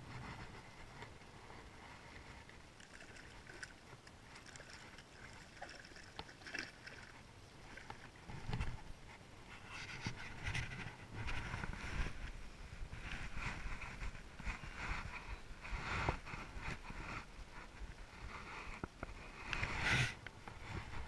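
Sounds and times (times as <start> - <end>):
fish splashing in shallow water: 2.1 - 8.4.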